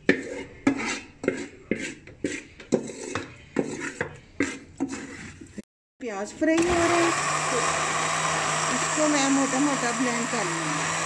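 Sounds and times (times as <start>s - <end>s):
spoon scraping metal pot: 0.0s - 5.6s.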